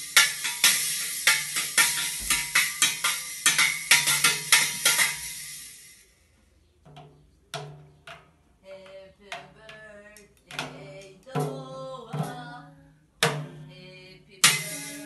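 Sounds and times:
toy cymbal hits ringing: 0.0s - 6.1s, 14.4s - 15.0s.

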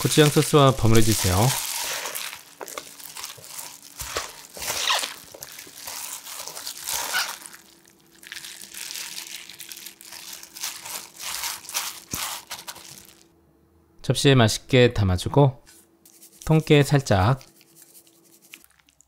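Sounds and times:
leafy rustling: 0.0s - 13.2s
wet squishing: 0.0s - 13.2s, 17.3s - 19.0s
plastic glove crinkling: 0.0s - 13.3s, 15.7s - 19.0s.

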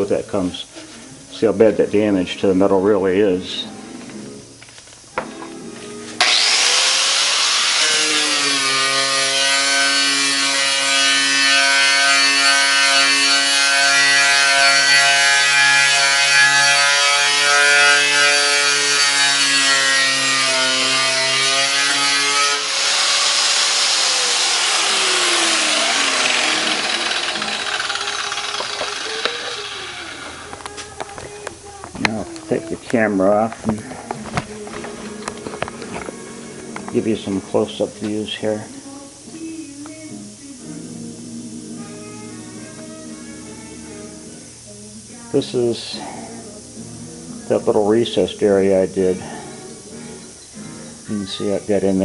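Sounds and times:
angle grinder whine: 3.2s - 32.8s, 33.7s - 38.8s
wire wheel scraping metal: 7.3s - 30.6s.

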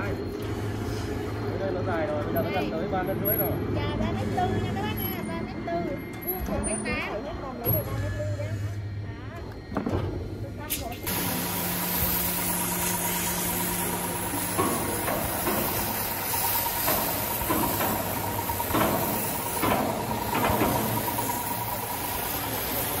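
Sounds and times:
machinery hiss: 10.7s - 23.0s
high whine: 10.8s - 23.0s.

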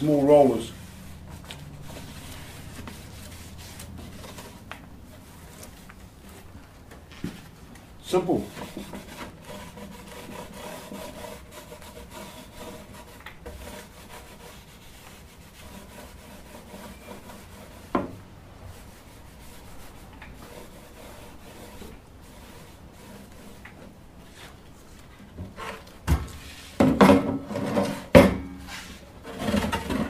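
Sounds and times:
paint roller rubbing on polystyrene: 0.0s - 6.5s, 8.0s - 17.9s, 18.7s - 24.9s, 26.4s - 26.9s, 28.7s - 29.5s.

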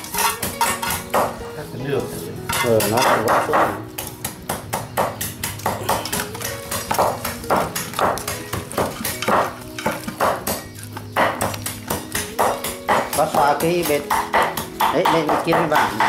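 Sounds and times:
metal utensils scraping cookware: 0.0s - 1.2s, 2.4s - 3.8s.

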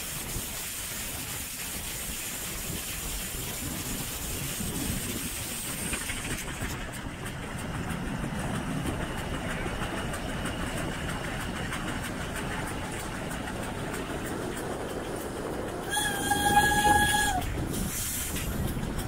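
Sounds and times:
wheels rattling on rails: 0.0s - 19.0s
steam whistle blast: 15.9s - 17.5s.

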